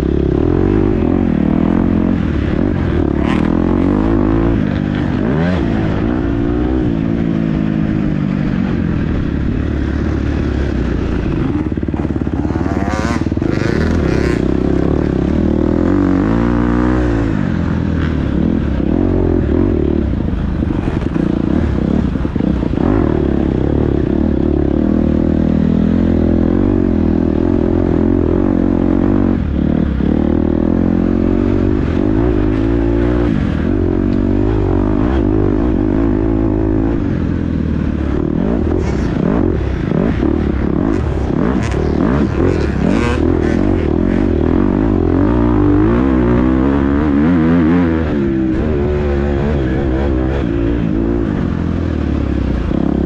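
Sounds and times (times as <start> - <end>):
dirt bike engine revving: 0.0 - 53.0.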